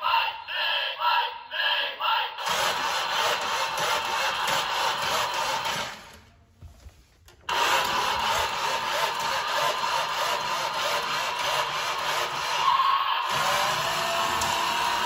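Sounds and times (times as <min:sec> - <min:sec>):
toy engine sound effect: 0:02.4 - 0:06.2, 0:07.5 - 0:15.0.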